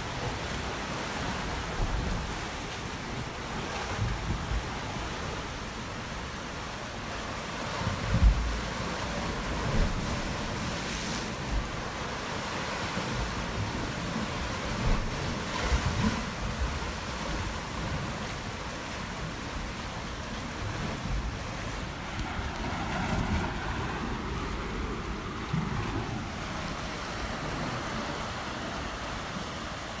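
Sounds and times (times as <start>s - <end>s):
waves breaking with low thuds: 0.0s - 30.0s
surf rushing onto shore: 7.8s - 14.0s.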